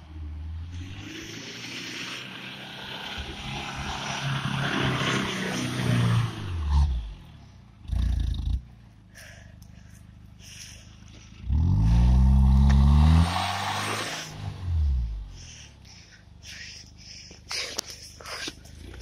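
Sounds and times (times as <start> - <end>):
off-road vehicle engine revving: 0.0 - 8.9, 10.4 - 16.0.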